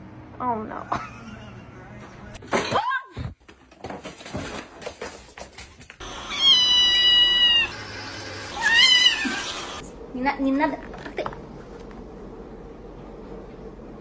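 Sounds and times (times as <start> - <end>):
kitten meowing: 6.3 - 7.7, 8.6 - 9.5.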